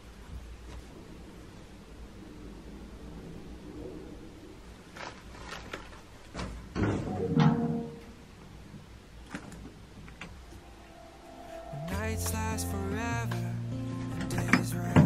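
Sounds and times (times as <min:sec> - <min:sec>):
faint music: 0:10.1 - 0:15.0.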